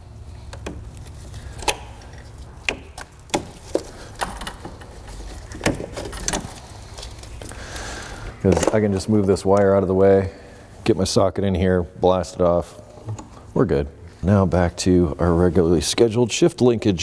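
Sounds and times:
clicks and knocks of parts: 0:00.4 - 0:07.9.

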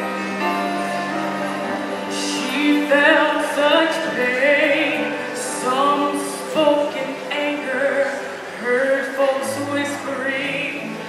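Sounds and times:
instrumental accompaniment: 0:00.0 - 0:08.6
woman singing gospel song: 0:02.1 - 0:11.0.

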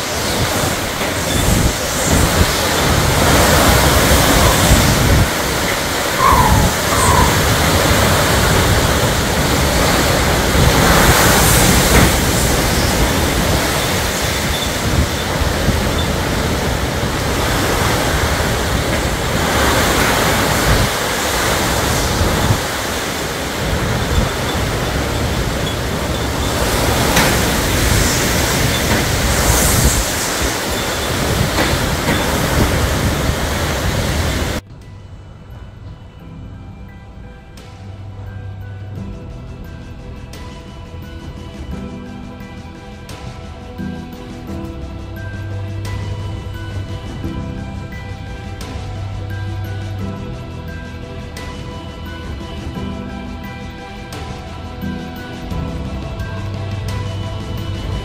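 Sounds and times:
heavy rain: 0:00.0 - 0:34.7
strong wind gusts: 0:00.0 - 0:58.0.

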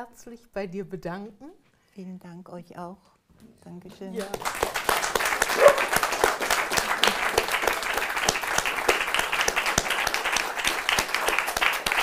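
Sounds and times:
audience applauding: 0:04.2 - 0:12.0.

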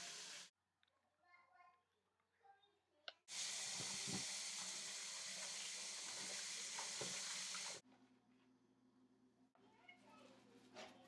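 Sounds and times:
tap water running: 0:00.0 - 0:00.5, 0:03.3 - 0:07.8.

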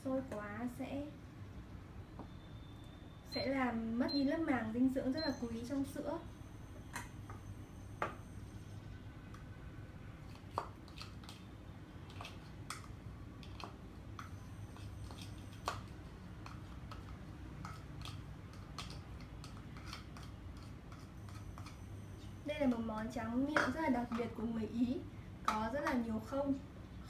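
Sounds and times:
spatula scraping a bowl: 0:19.5 - 0:22.4.

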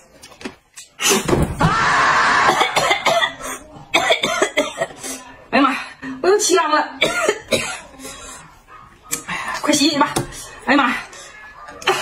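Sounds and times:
person coughing hard: 0:02.4 - 0:05.0, 0:07.0 - 0:08.0.

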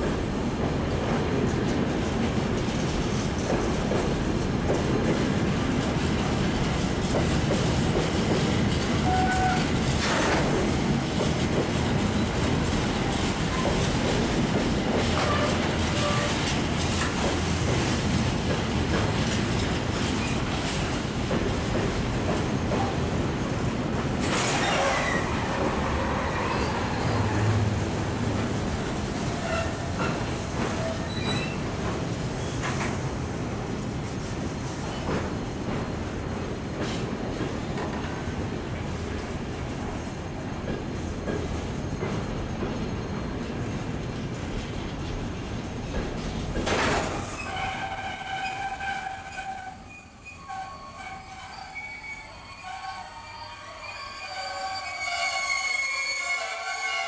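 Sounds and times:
train wheels rumbling on rails: 0:00.0 - 0:57.0
train wheels squealing: 0:09.0 - 0:10.3, 0:24.2 - 0:27.7, 0:29.3 - 0:31.7, 0:46.8 - 0:57.0.

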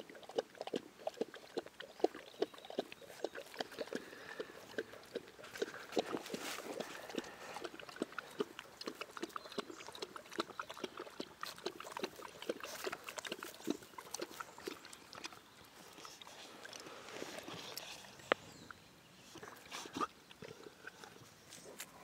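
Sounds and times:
puppy sniffing: 0:03.1 - 0:08.5, 0:11.2 - 0:18.5
dry grass rustling: 0:05.4 - 0:07.1.

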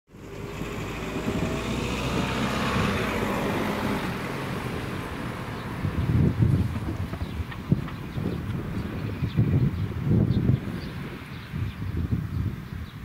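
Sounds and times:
car driving past: 0:00.1 - 0:09.2.

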